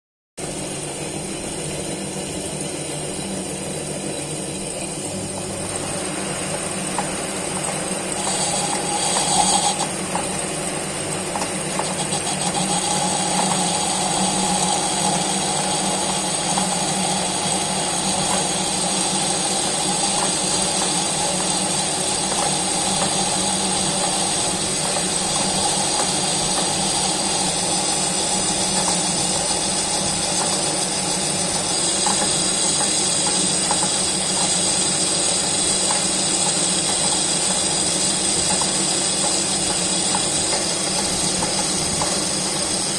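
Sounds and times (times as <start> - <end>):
metal lathe humming: 0.4 - 42.9
whine of metal cutting: 0.4 - 42.9
cutting tool scraping metal: 8.1 - 10.0.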